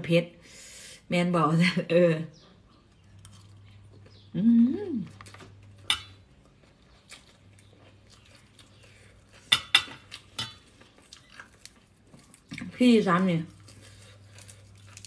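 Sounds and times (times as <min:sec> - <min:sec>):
person humming: 0:04.3 - 0:05.2.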